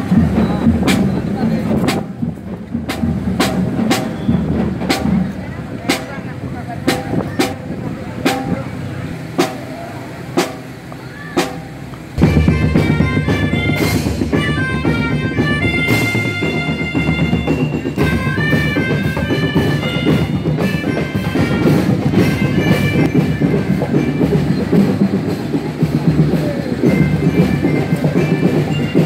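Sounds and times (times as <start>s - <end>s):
snare and bass drums beat: 0.0s - 8.8s, 9.4s - 9.8s, 10.4s - 29.0s
melodicas and glockenspiels melody: 12.5s - 20.5s, 22.7s - 29.0s.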